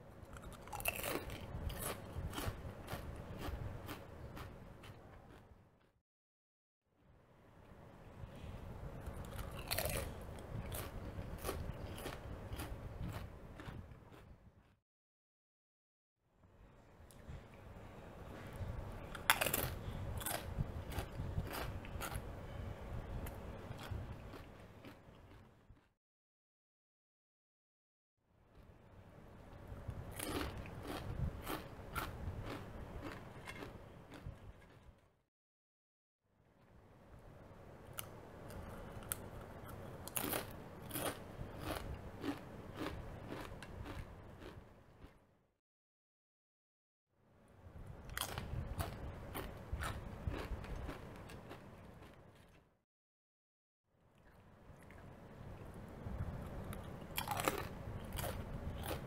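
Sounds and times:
chewing: 0.3s - 5.4s, 9.1s - 14.2s, 23.7s - 25.9s, 30.1s - 34.8s, 38.0s - 45.2s, 48.2s - 52.6s, 56.7s - 59.0s
tortilla chip crunching: 0.3s - 5.4s, 9.2s - 14.2s, 19.1s - 22.2s, 30.1s - 34.8s, 40.0s - 45.1s, 48.1s - 52.6s, 57.1s - 59.0s.

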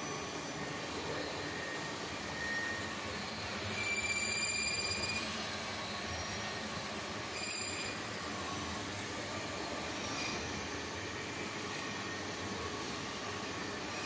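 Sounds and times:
metal-cutting squeals: 0.1s - 8.5s, 9.4s - 10.7s, 13.6s - 14.0s.

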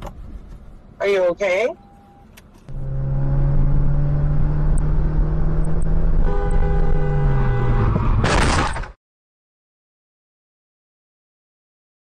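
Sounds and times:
car driving drone: 2.6s - 8.8s
car horn: 6.1s - 8.2s.

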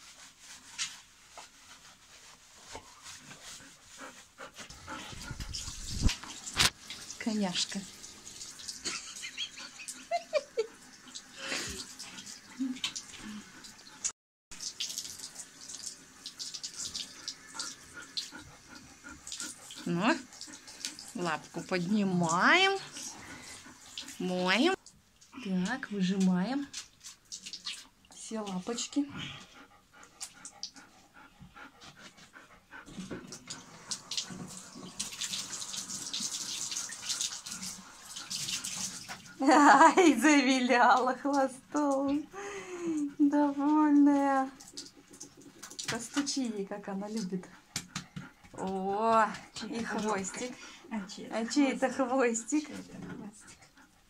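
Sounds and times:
water splashing in a bathtub: 0.0s - 54.0s
shower water spraying: 4.8s - 24.8s, 33.3s - 47.4s.

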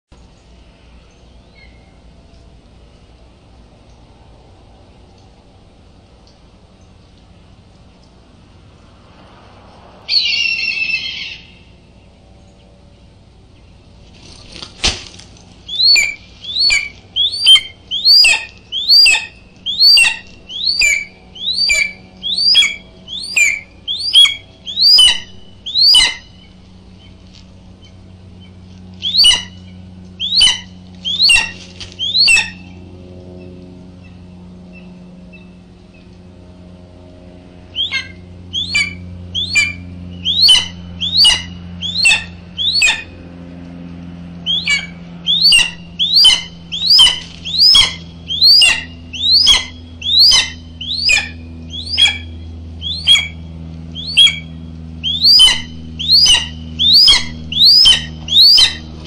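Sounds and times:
faint steady hum: 0.1s - 59.0s
bird calling sharply: 15.6s - 26.5s, 29.0s - 29.6s, 30.2s - 32.7s, 37.8s - 43.1s, 44.5s - 59.0s.

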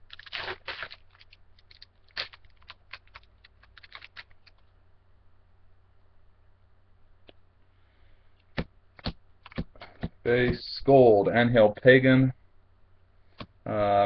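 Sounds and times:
foil wrapper crinkles and clicks: 0.0s - 4.7s.

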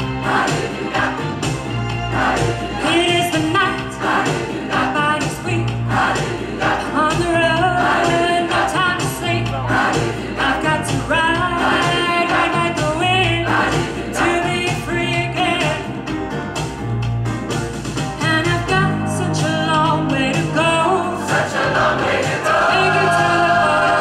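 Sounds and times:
choir singing rock song: 0.0s - 16.0s, 20.8s - 24.0s
bass line and beat: 0.0s - 24.0s
woman singing lead: 2.3s - 15.9s, 18.2s - 21.5s.

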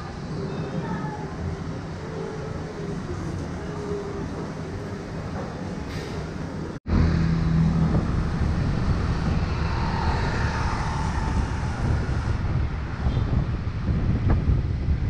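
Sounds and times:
low background rumble: 6.9s - 15.0s
wind buffeting microphone: 6.9s - 15.0s.

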